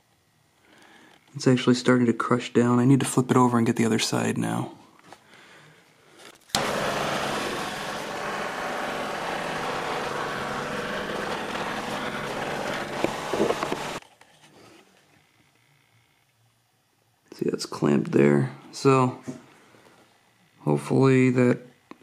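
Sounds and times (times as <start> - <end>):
propane torch hissing: 6.6 - 14.0.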